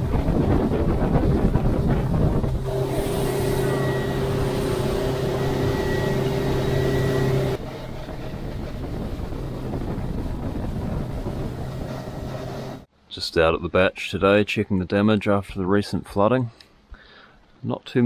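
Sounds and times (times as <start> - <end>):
motorboat engine running: 0.0 - 12.9
wind rushing: 0.0 - 12.9.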